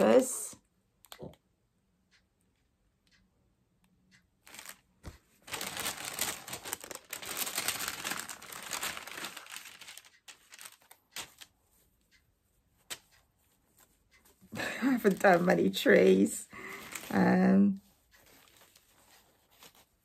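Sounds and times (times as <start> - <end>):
paper crinkling and rustling: 4.4 - 11.5, 14.6 - 15.8, 16.6 - 20.0.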